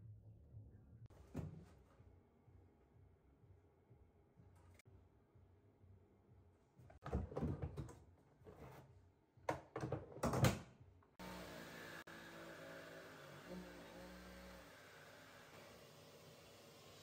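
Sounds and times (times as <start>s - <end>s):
power tool motor running: 11.2s - 17.0s.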